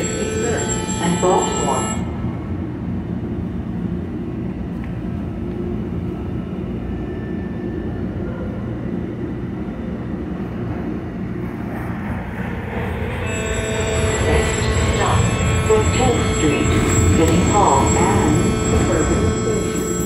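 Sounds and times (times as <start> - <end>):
trolley wheels rumbling on rail: 10.4 - 20.0.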